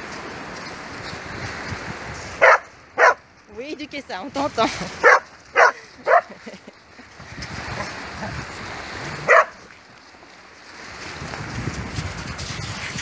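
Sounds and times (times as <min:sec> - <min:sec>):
outdoor background noise: 0:00.0 - 0:13.0
dog barking: 0:02.4 - 0:03.2, 0:05.0 - 0:06.4, 0:09.2 - 0:09.6.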